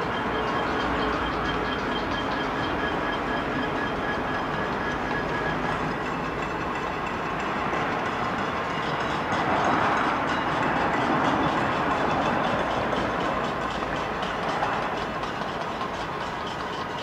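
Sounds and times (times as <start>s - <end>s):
people banging pots and pans: 4.7s - 17.0s.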